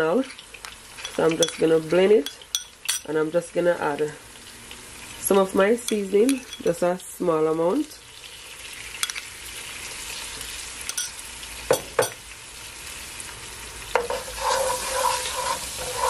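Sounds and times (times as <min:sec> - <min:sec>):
vegetables sizzling in oil: 0:00.0 - 0:16.0
wooden spoon scraping pan: 0:14.0 - 0:16.0.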